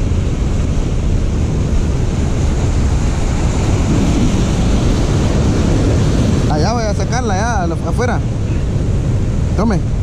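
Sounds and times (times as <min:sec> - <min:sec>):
wind rumbling on microphone: 0:00.0 - 0:10.0
surf breaking against boulders: 0:03.5 - 0:07.7.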